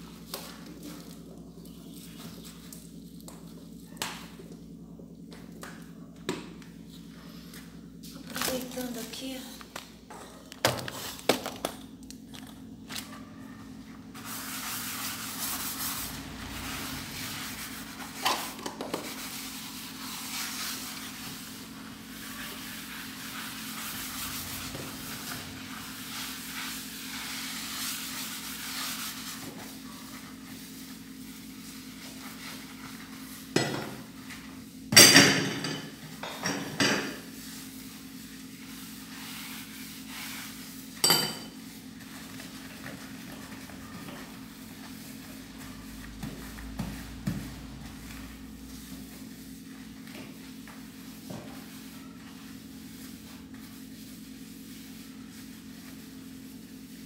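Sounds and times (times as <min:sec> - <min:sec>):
scrubbing glass cooktop: 0:13.8 - 0:57.0
cooktop parts clanking: 0:35.0 - 0:37.2, 0:41.0 - 0:41.5.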